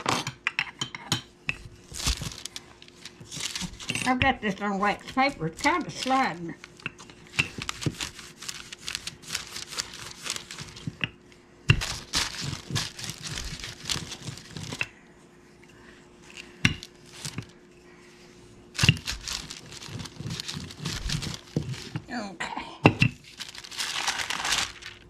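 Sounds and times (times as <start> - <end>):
wax paper crinkling: 1.8 - 11.0, 11.8 - 14.8, 16.3 - 17.6, 18.7 - 22.1, 23.2 - 25.0.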